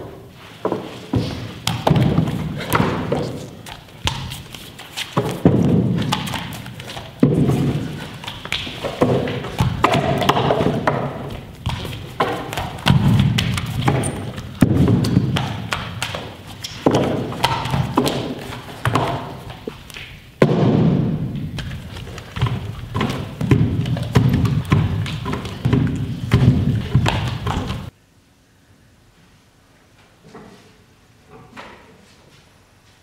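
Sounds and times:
bodies thumping on wood: 0.8s - 4.5s, 5.1s - 19.7s, 20.4s - 27.9s.

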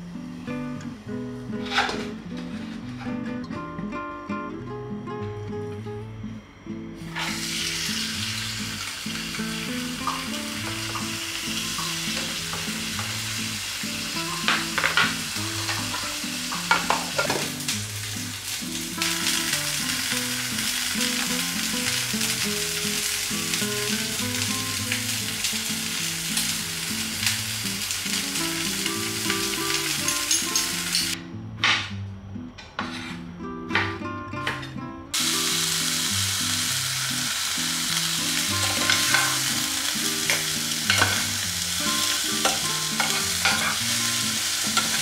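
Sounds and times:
soft background music: 0.0s - 45.0s
food sizzling in a pan: 7.0s - 31.2s, 35.1s - 45.0s
metal tongs clicking on pan: 30.0s - 31.2s, 38.6s - 39.4s, 40.3s - 41.3s, 42.4s - 43.8s.

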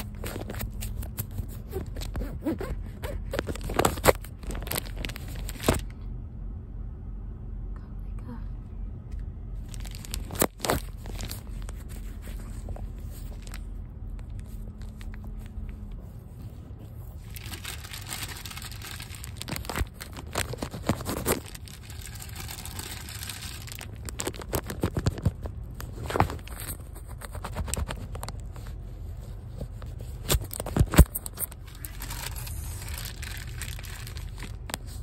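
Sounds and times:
plastic bag crinkling: 3.1s - 5.9s, 9.6s - 15.7s, 17.0s - 28.7s, 29.8s - 35.0s.

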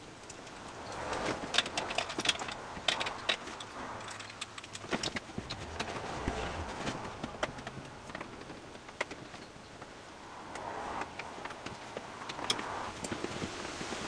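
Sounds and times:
cables and plugs clicking and rattling: 0.0s - 10.0s
equipment rustling: 2.0s - 9.4s.

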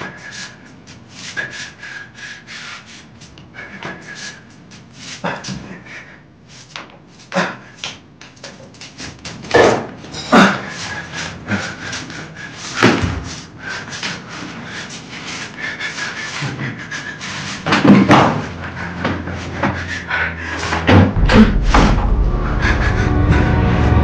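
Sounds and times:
droning horror music: 17.9s - 24.0s
doors and windows slamming: 20.7s - 24.0s.

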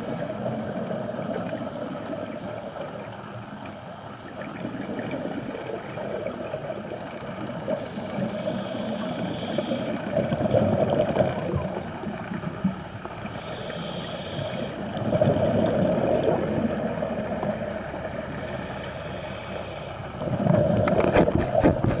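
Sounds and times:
regulator hissing inhale: 0.0s - 0.6s, 7.7s - 10.2s, 13.2s - 15.0s, 18.3s - 20.2s
bubbling exhaust underwater: 0.0s - 22.0s.

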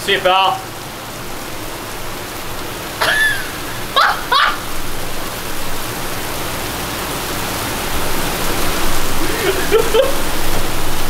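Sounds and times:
heavy rain on flooded street: 0.0s - 11.0s
person whooping: 3.0s - 4.7s.

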